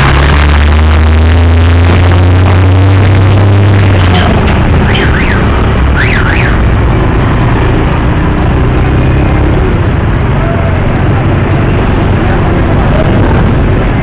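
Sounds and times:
wind on microphone: 11.8s - 14.0s.

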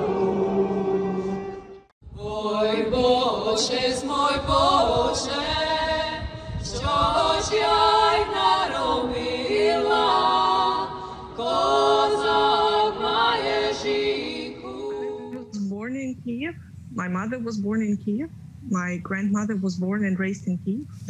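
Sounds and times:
choir singing a cappella: 0.0s - 15.5s.

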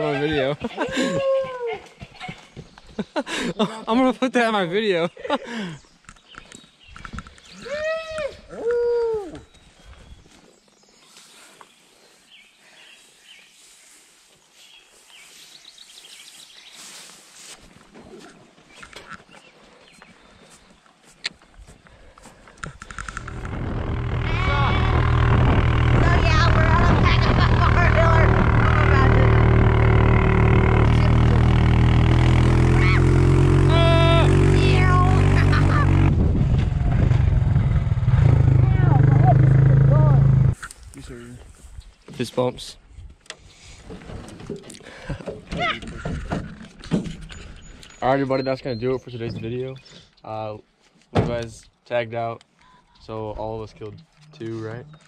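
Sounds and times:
songbirds chirping: 1.9s - 7.8s, 9.2s - 26.6s, 46.1s - 55.0s
footsteps rustling tall grass: 10.2s - 17.9s
atv engine running: 22.6s - 40.6s.

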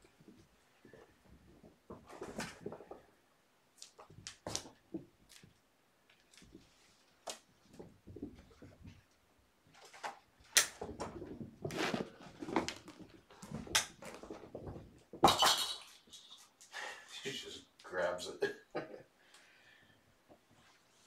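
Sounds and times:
kittens knocking and clattering toys: 7.6s - 11.7s, 12.3s - 15.9s.

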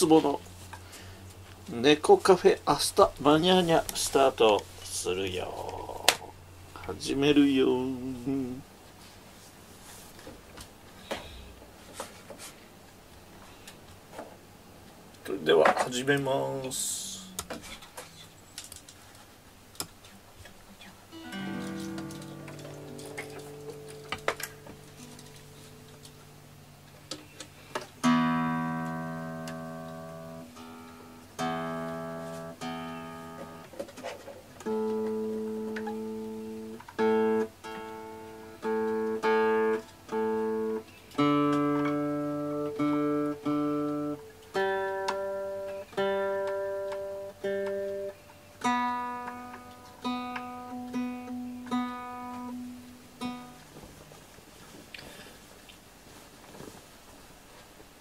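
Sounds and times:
acoustic guitar strummed chords: 21.1s - 26.8s, 27.5s - 33.7s, 34.6s - 53.9s.

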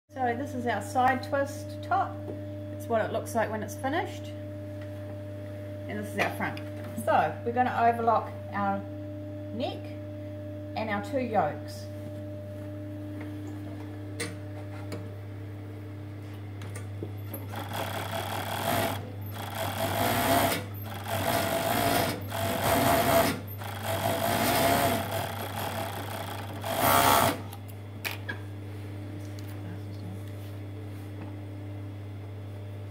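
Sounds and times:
overlocker sewing: 17.3s - 27.5s.

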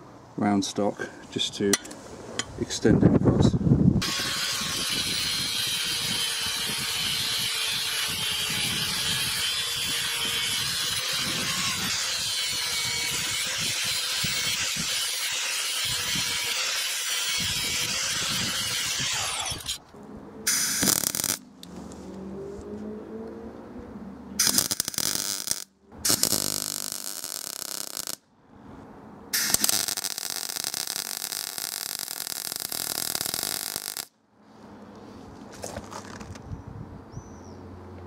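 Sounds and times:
metalworking tool running on steel: 4.0s - 19.8s.

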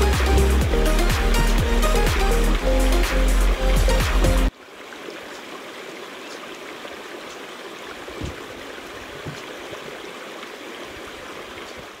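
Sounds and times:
river water rushing over rocks: 2.6s - 12.0s
soft low knocks: 8.2s - 10.0s.

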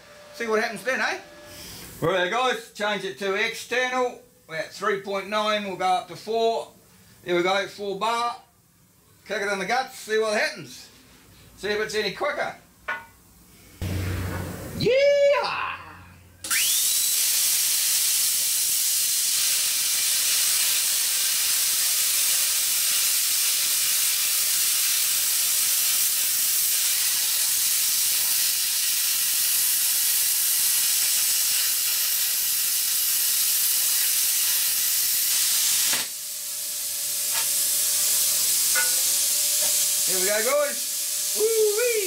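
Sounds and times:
plasma cutter hissing: 13.8s - 14.8s, 16.4s - 42.0s
rising whine of arc start: 13.8s - 14.9s.

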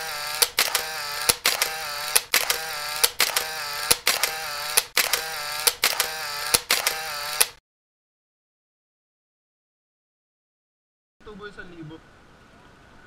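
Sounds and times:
camera shutter click: 0.0s - 7.6s.

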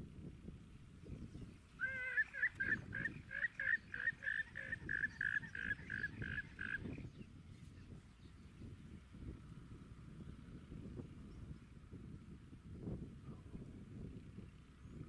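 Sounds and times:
animal calling in rapid high notes: 1.8s - 6.9s.

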